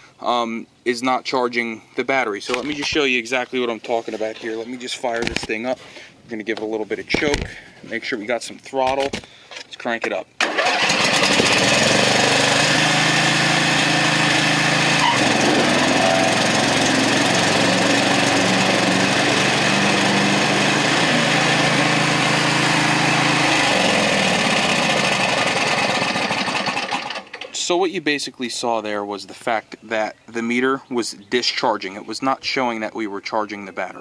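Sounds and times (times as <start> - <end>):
riding mower engine running: 10.4 - 27.6.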